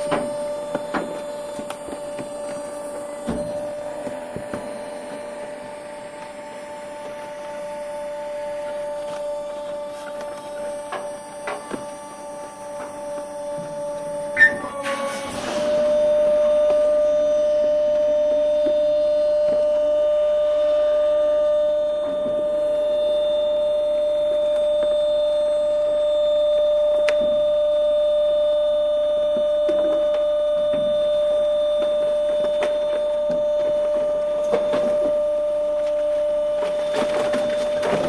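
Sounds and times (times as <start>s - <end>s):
compactor motor whine: 0.0s - 38.0s
cardboard crackling as crushed: 31.6s - 38.0s.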